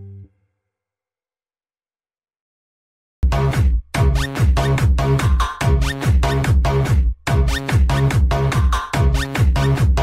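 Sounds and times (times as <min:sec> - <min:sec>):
electronic dance music: 0:03.3 - 0:10.0.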